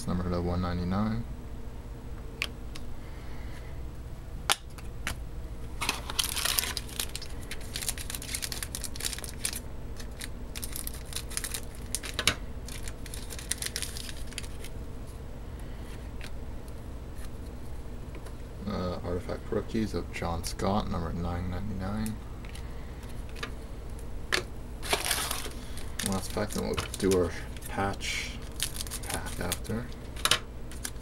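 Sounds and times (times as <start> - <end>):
foil wrapper crinkling: 5.8 - 14.8, 24.8 - 31.0.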